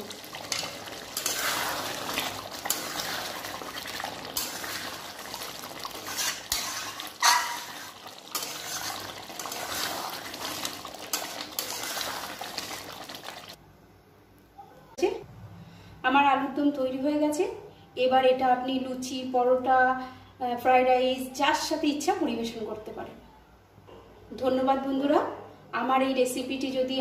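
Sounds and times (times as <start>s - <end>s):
gravy sloshing: 0.0s - 13.6s
metal spatula scraping a pot: 0.2s - 12.8s.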